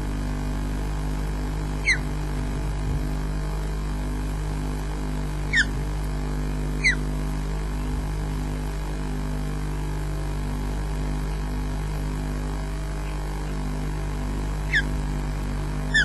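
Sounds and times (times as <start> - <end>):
electrical hum: 0.0 - 16.0
osprey chirp: 1.8 - 2.1, 5.5 - 5.8, 6.8 - 7.0, 14.7 - 14.9.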